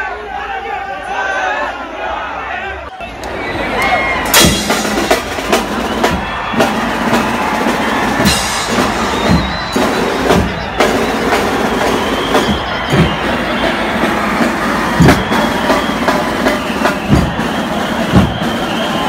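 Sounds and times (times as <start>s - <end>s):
big crowd noise: 0.0s - 19.0s
drums beating heavy strokes: 4.2s - 19.0s.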